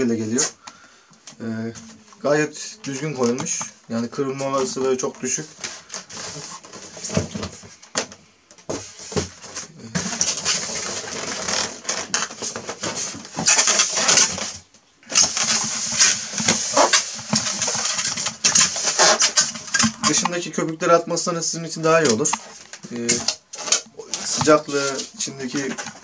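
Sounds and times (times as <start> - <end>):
foam squeaking against foam: 13.3 - 14.3, 15.1 - 19.9.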